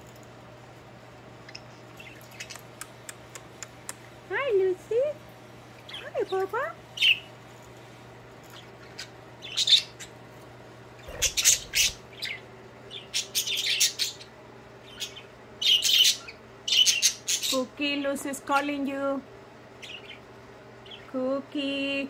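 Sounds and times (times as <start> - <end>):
budgie chirping and squawking: 1.5 - 3.8, 7.0 - 7.3, 8.5 - 10.2, 11.0 - 17.6, 19.8 - 21.0.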